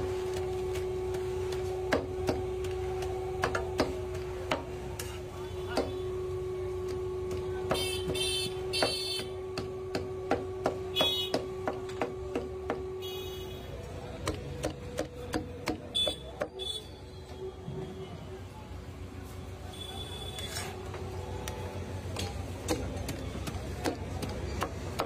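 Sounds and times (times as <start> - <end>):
cleaver chopping on griddle: 1.1 - 4.8, 7.3 - 12.9.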